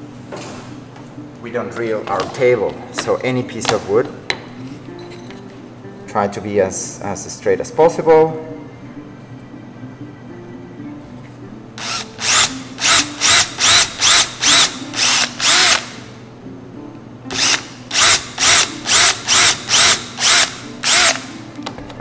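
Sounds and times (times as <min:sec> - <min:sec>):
cordless drill bursts into wood: 0:11.8 - 0:16.0, 0:17.3 - 0:21.3.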